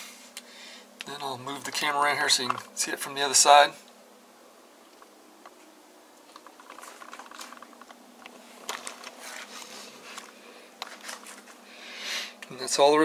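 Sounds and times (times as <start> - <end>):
camera handling rustling: 4.9 - 11.6
sharp clicks and knocks: 6.2 - 9.2.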